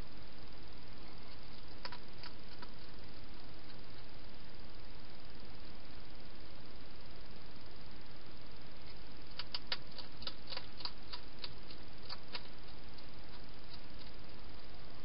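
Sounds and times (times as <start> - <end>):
steady background hiss: 0.0 - 15.0
hedgehog chewing crisp clicks: 1.5 - 2.9, 9.3 - 14.2.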